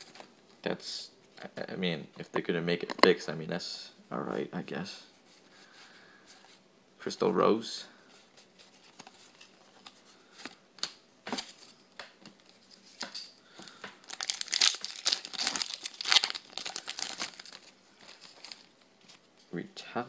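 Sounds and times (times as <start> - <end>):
foil pack crinkling and tearing: 13.6 - 18.8.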